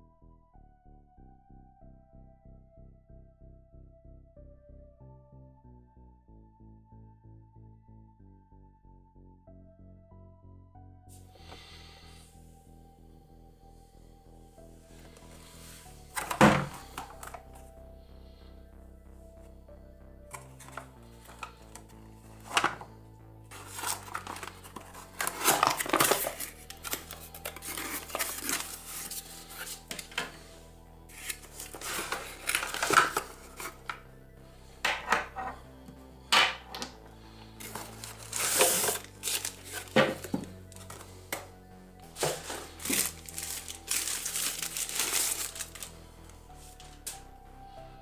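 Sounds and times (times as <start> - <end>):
quiet background music: 0.0 - 48.0
cardboard packaging rustling: 15.0 - 17.5, 20.3 - 22.9, 23.5 - 30.4, 31.1 - 34.0, 37.6 - 41.5, 42.1 - 46.0.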